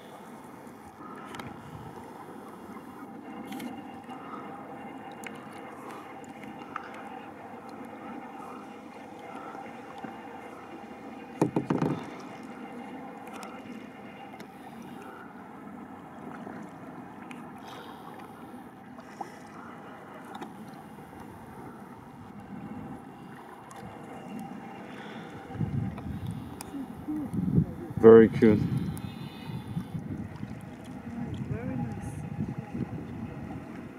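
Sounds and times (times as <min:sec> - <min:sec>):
kayak paddling in water: 0:00.0 - 0:33.9
knocks: 0:11.4 - 0:12.1.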